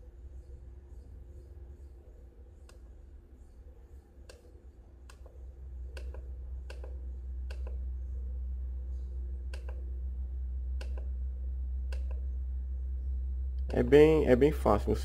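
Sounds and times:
steady low hum: 0.0s - 15.0s
monitor buttons clicking: 4.2s - 7.8s, 9.5s - 9.8s, 10.8s - 11.1s, 11.9s - 12.3s.

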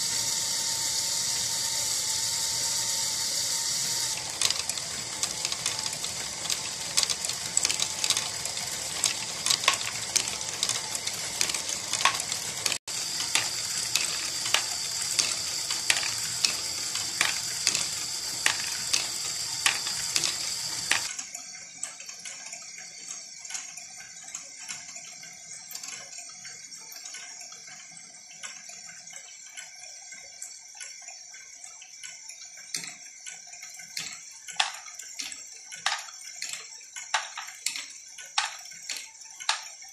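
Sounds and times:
plastic gears clattering: 0.0s - 21.2s, 33.8s - 39.9s
plastic balls clicking: 0.1s - 21.1s, 34.0s - 39.8s.

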